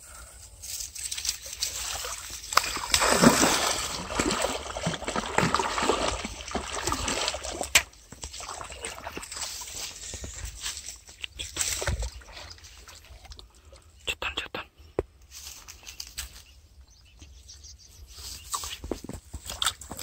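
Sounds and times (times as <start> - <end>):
water splashing and sloshing: 0.6 - 13.6.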